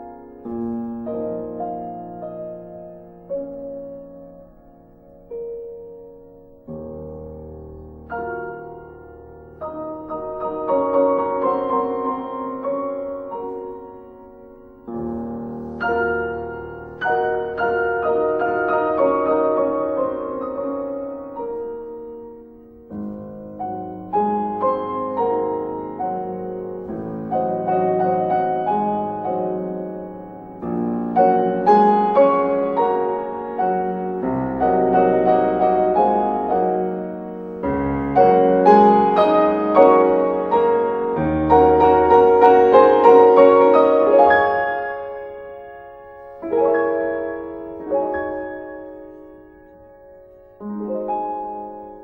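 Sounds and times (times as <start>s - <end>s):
solo piano music: 0.0s - 52.0s.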